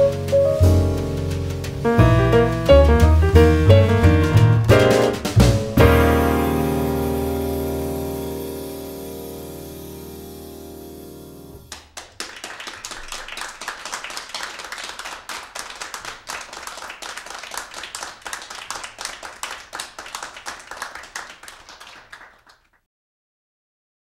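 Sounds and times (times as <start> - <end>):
jazz piano and double bass chord: 0.0 - 11.7
audience applause: 11.7 - 22.8.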